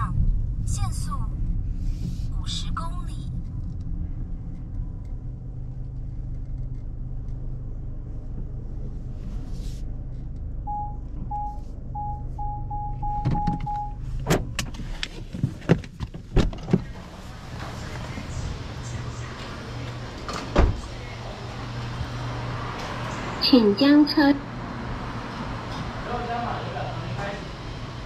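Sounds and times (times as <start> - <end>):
car engine humming: 0.0 - 28.0
parking sensor beeping: 10.6 - 14.1
clicks and knocks inside car: 13.1 - 17.0.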